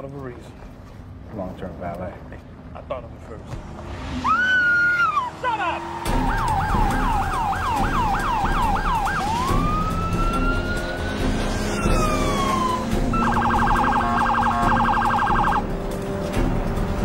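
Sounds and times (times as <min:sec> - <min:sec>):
police siren: 0:04.2 - 0:15.8.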